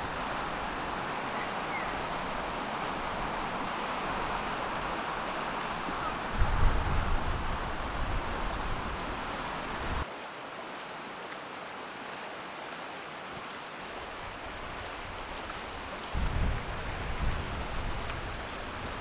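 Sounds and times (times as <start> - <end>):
wind buffeting microphone: 0.0 - 10.0, 14.5 - 19.0
river flowing: 0.0 - 19.0.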